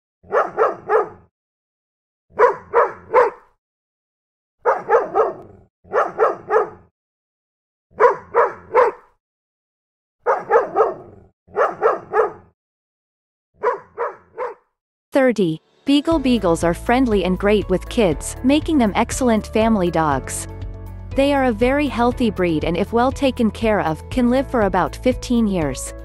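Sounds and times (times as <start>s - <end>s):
dog barking: 0.2s - 1.3s, 2.3s - 3.6s, 4.6s - 6.9s, 7.9s - 9.2s, 10.2s - 12.5s, 13.6s - 14.7s.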